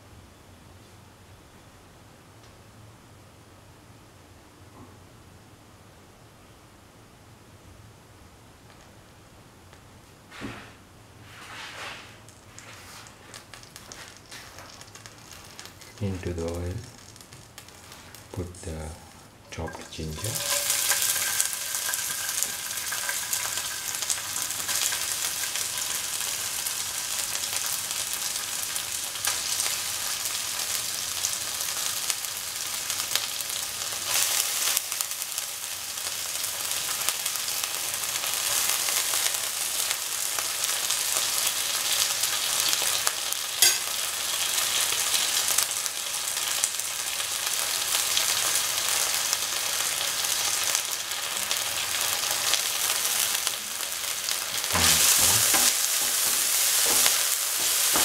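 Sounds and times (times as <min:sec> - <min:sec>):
ginger sizzling in hot oil: 0:11.8 - 0:58.0.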